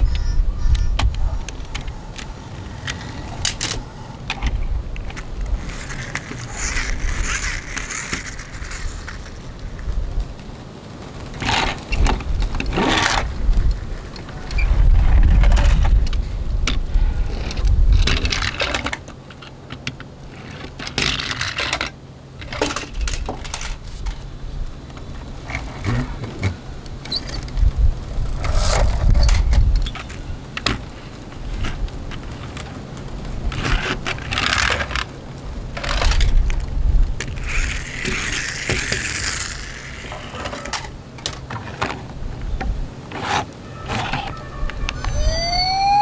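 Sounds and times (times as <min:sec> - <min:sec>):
toy car wheels rolling on wood: 0:00.0 - 0:46.0
toy cars clicking and knocking: 0:00.7 - 0:09.4, 0:17.4 - 0:24.2, 0:28.4 - 0:30.9, 0:33.5 - 0:35.1, 0:35.7 - 0:36.6, 0:37.2 - 0:42.0, 0:43.1 - 0:46.0.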